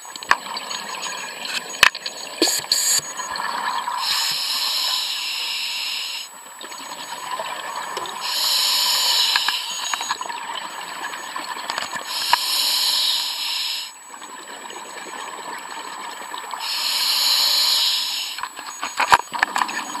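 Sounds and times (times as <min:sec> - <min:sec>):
fireworks hissing: 0:04.0 - 0:06.3, 0:08.2 - 0:10.2, 0:12.1 - 0:14.0, 0:16.6 - 0:18.4.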